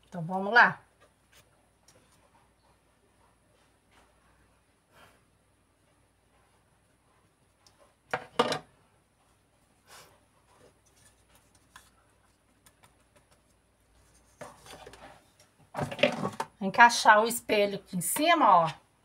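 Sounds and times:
soft rustle: 9.1 - 15.6.

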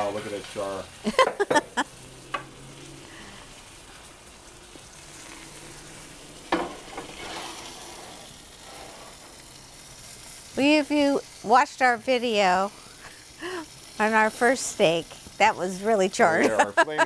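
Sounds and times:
steak sizzling in a skillet: 0.0 - 17.0
clunk: 6.5 - 7.1.

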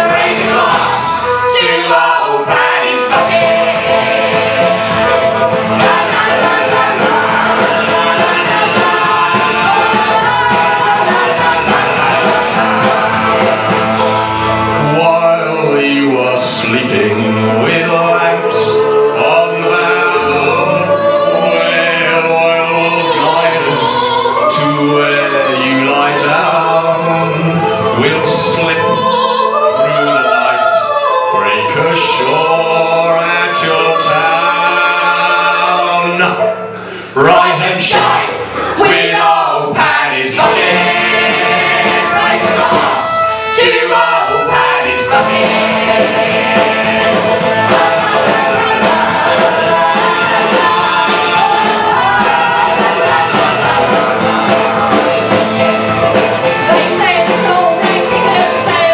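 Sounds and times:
double bass: 0.0 - 29.8, 31.3 - 58.9
acoustic guitar: 0.0 - 58.9
banjo: 0.0 - 58.9
folk band playing live: 0.0 - 58.9
people singing: 0.0 - 58.9.

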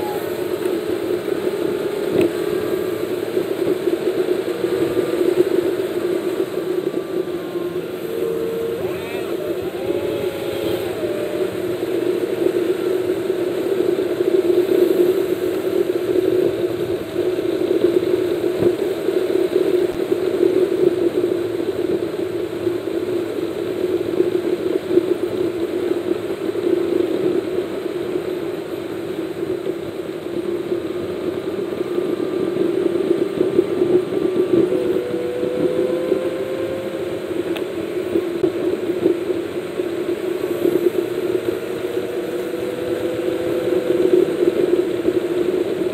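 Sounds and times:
faint rising tone: 0.0 - 13.9, 31.4 - 38.2, 40.8 - 45.8
car engine and tyres at highway speed: 0.0 - 45.9.

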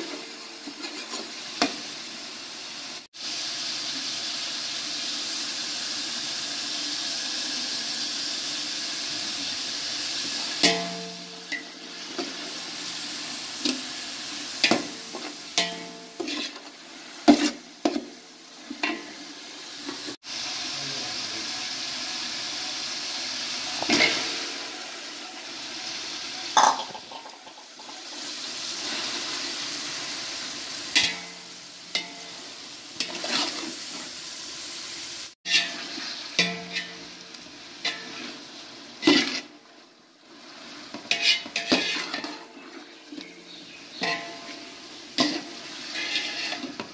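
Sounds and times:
onions and chicken sizzling in oil: 0.0 - 46.9
metal spoon scraping a pot: 15.6 - 16.7, 35.5 - 37.0, 39.0 - 39.5, 41.1 - 42.4, 45.2 - 46.8.

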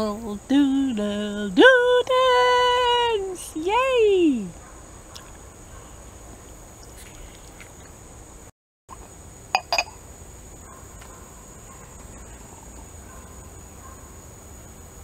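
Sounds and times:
porcelain lid clinking on cup: 9.6 - 9.9.

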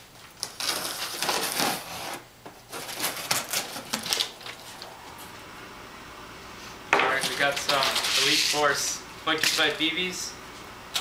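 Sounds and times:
packing tape tearing: 0.2 - 4.9, 7.2 - 8.6.

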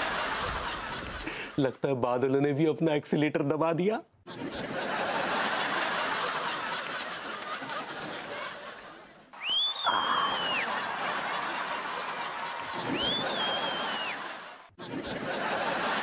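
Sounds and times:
audience laughter: 0.0 - 1.6, 4.3 - 9.3, 9.9 - 16.0
high whistle-like tone: 9.4 - 10.8.

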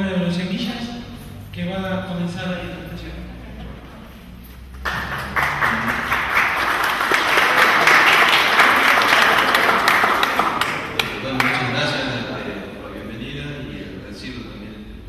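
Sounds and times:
audience applauding: 4.7 - 11.8.

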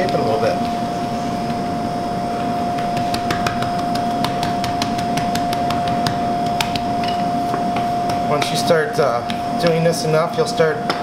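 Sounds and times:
steady high hum: 0.0 - 11.0
hands tapping pie dough: 2.7 - 9.4.

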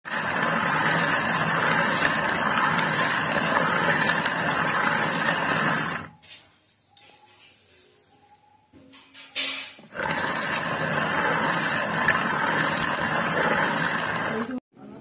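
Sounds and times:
stone grinding on stone: 0.1 - 6.2, 9.6 - 14.6.

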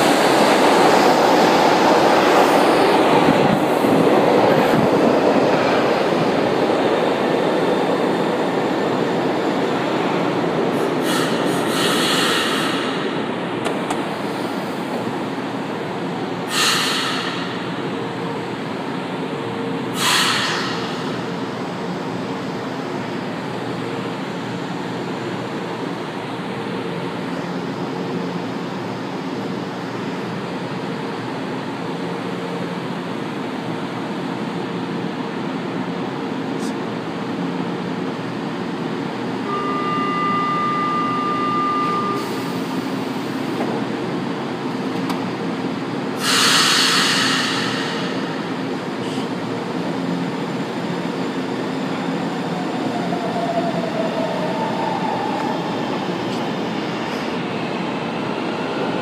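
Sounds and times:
train humming at platform: 0.0 - 59.0
air hiss: 11.0 - 13.0, 16.5 - 17.4, 20.0 - 21.0, 46.2 - 48.3
door-closing warning tone: 39.4 - 42.7.

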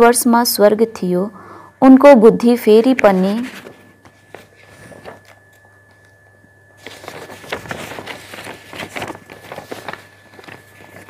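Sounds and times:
faint steady hum: 0.0 - 11.0
paper rustling and crackling: 2.8 - 11.0.

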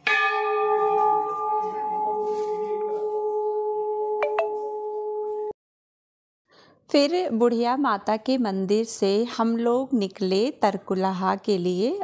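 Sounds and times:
temple bell ringing: 0.0 - 5.5.

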